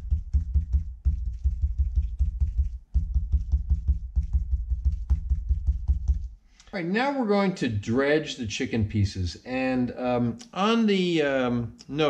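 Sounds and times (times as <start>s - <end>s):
fingertips patting raw meat: 0.0s - 6.4s.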